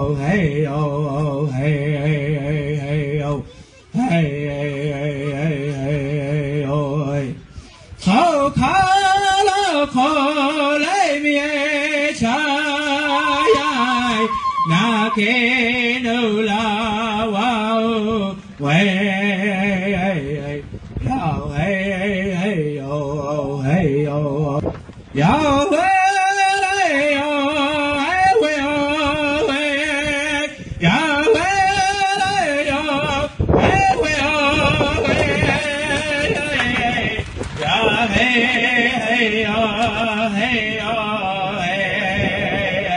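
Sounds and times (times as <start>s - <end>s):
man singing with vibrato: 0.0s - 42.9s.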